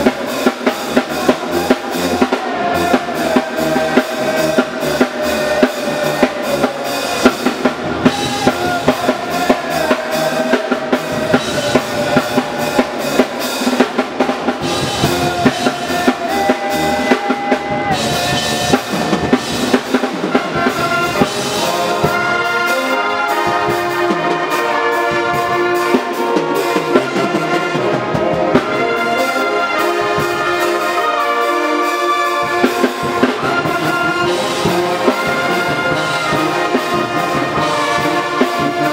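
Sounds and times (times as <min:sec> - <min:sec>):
drum hits: 0:00.0 - 0:22.5
brass band playing: 0:00.0 - 0:38.9
horns playing held chords: 0:00.0 - 0:38.9.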